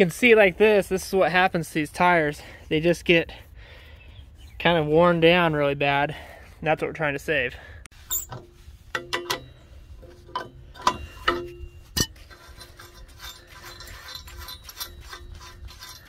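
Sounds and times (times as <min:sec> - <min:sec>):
metallic clicks and knocks: 0:08.1 - 0:16.0
sharp metal clank: 0:10.3 - 0:12.3.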